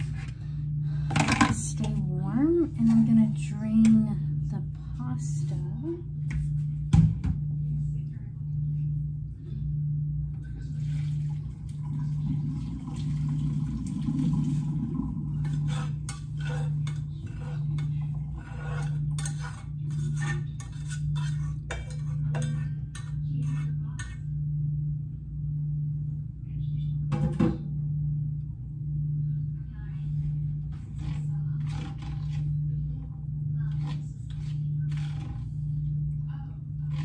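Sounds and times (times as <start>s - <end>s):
dishes and utensils clattering: 15.4s - 24.2s.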